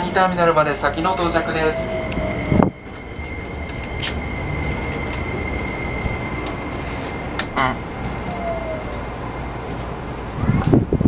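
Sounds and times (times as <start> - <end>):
high electric whine: 0.0 - 11.0
train wheels rumbling on rail: 0.0 - 11.0.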